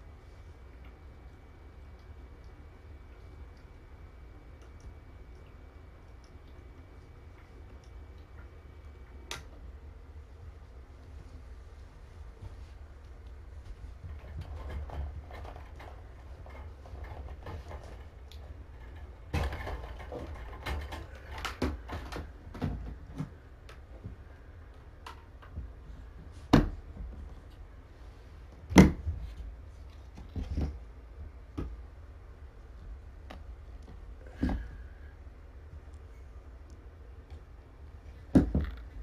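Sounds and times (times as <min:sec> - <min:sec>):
sharp plastic knocks: 0:28.7 - 0:29.2.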